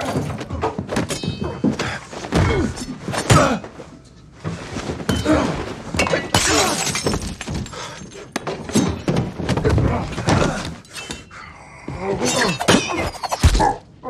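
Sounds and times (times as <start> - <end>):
glass shattering: 6.0 - 9.2.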